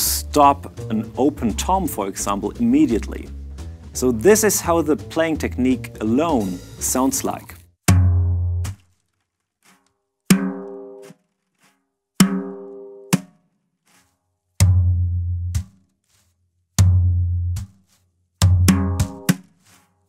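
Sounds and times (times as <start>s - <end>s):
tom-toms struck with brushes: 10.3s - 15.9s, 16.8s - 19.9s.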